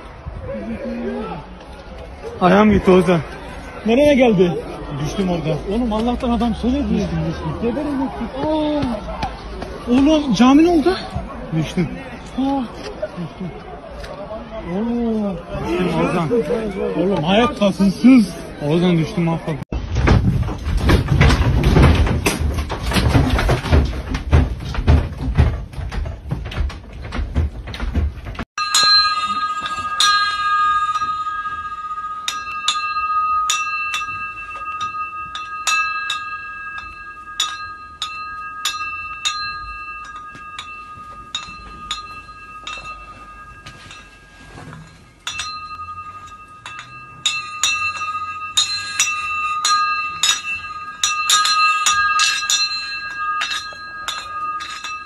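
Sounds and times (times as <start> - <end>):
glass lamp shades clinking: 20.4 - 55.0.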